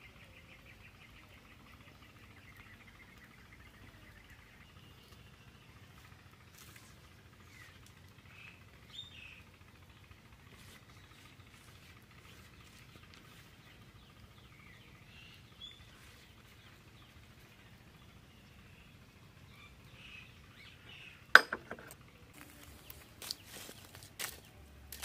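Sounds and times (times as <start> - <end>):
birds chirping: 0.0 - 25.0
wooden sticks knocking on stones: 21.4 - 22.0.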